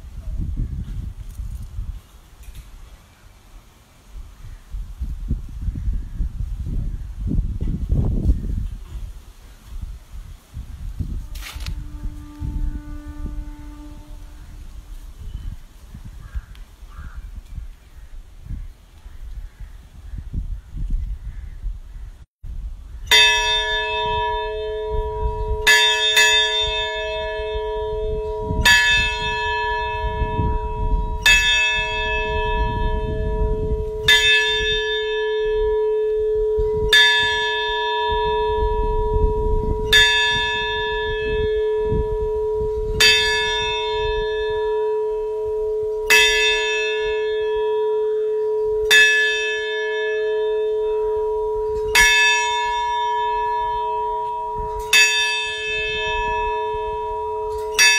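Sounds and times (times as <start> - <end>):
large bell tolling: 23.1 - 57.9.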